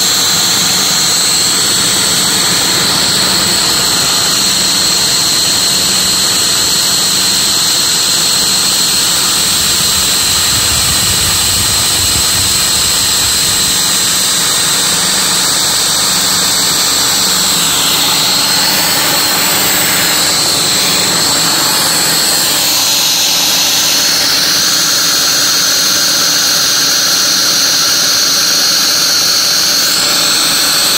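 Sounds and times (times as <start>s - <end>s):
milling machine cutting metal: 0.0s - 30.9s.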